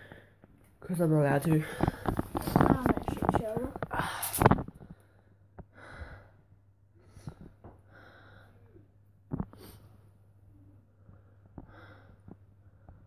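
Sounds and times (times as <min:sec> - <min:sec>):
faint low hum: 0:00.0 - 0:13.0
soft breaths: 0:01.3 - 0:13.0
person sighing: 0:03.9 - 0:04.5.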